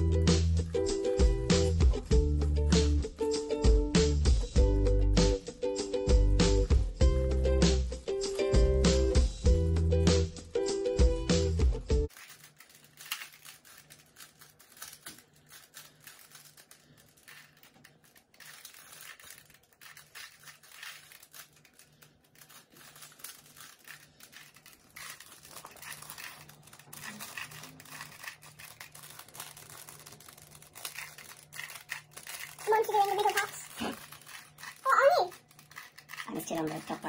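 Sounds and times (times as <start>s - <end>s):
plastic puzzle cubes clicking: 12.1s - 37.0s.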